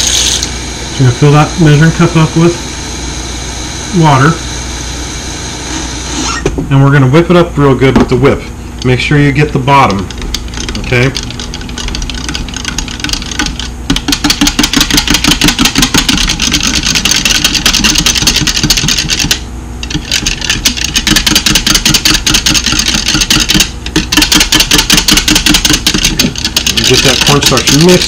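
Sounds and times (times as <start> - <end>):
whisk clicking against glass: 10.3 - 28.0.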